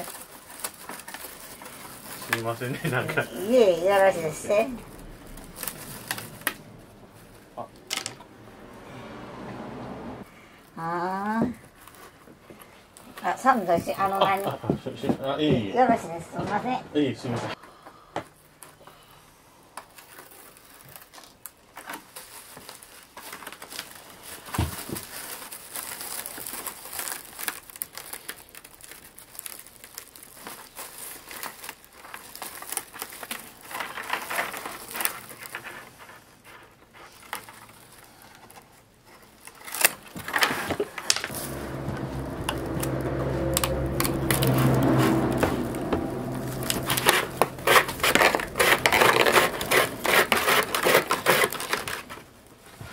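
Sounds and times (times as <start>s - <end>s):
strips rubbing through weave: 0.0s - 8.2s, 33.6s - 52.3s
bamboo strips rustling and clicking: 0.0s - 8.8s, 19.7s - 52.9s
low hum: 1.2s - 10.3s, 41.3s - 51.2s.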